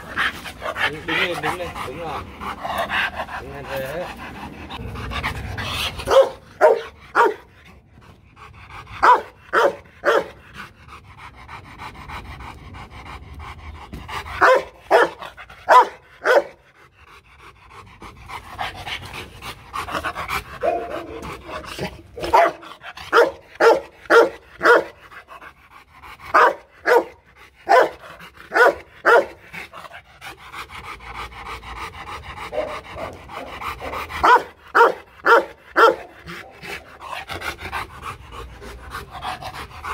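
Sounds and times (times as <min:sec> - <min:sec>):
dog panting: 0:00.0 - 0:39.9
dog barking: 0:06.1 - 0:07.4, 0:09.0 - 0:10.4, 0:14.4 - 0:16.6, 0:20.6 - 0:21.2, 0:22.2 - 0:25.0, 0:26.3 - 0:29.4, 0:33.8 - 0:36.6.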